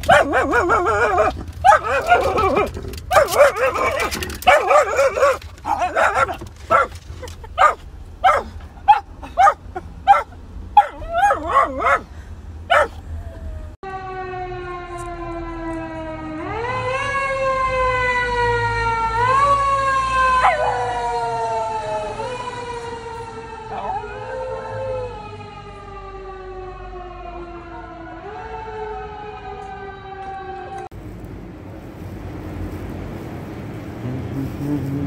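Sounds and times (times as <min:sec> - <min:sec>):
small dog barking: 0:00.0 - 0:07.0, 0:07.6 - 0:12.1, 0:12.7 - 0:13.0
dog whining: 0:00.1 - 0:12.1, 0:12.7 - 0:13.8.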